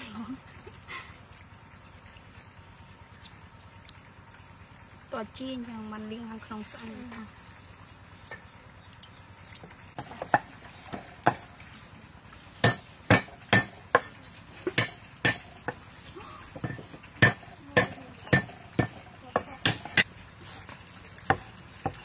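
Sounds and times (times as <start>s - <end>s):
knives chopping on wooden blocks: 12.6s - 15.8s, 16.6s - 20.1s.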